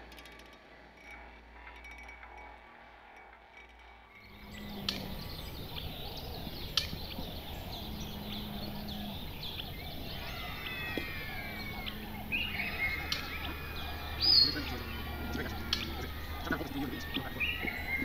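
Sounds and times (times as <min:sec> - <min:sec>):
steady outdoor background: 0:00.0 - 0:18.0
birds chirping and calling: 0:04.2 - 0:18.0.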